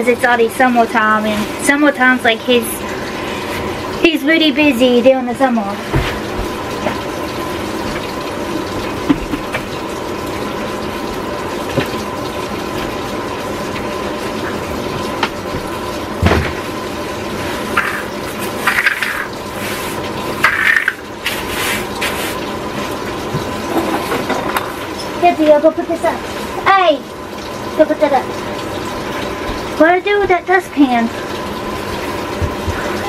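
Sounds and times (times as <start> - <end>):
washing machine filling with water: 0.0 - 33.0.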